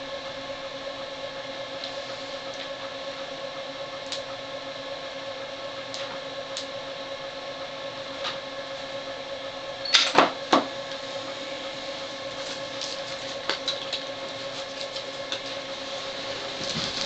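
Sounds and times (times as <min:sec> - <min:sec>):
steady machine hum: 0:00.0 - 0:17.0.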